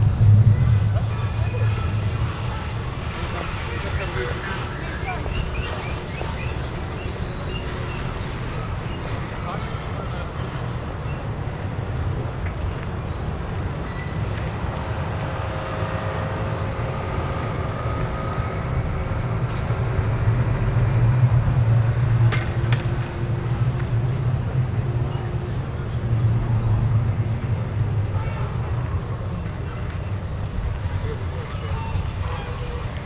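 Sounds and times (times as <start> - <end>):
faint engine hum: 0.0 - 11.0
passing vehicles rumble: 0.0 - 33.0.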